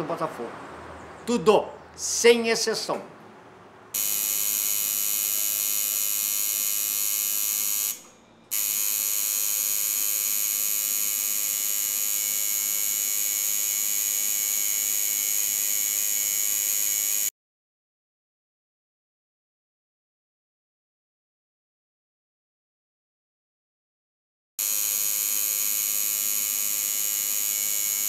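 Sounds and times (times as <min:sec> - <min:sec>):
electric tattoo machine buzzing: 0:03.9 - 0:17.3, 0:24.6 - 0:28.0.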